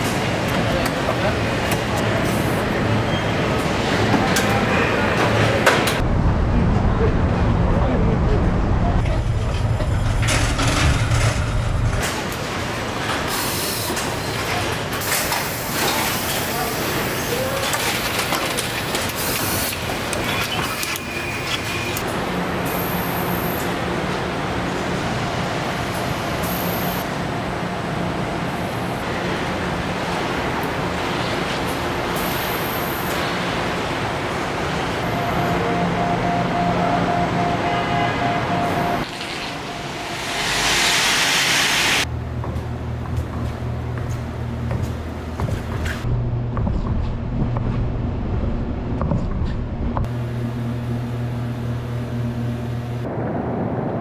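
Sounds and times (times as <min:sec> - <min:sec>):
machinery hiss and hum: 0:25.9 - 0:42.1
faint high whine: 0:35.0 - 0:42.0
repeating beeping tone: 0:35.1 - 0:41.0
hiss cutting off sharply: 0:40.2 - 0:42.0.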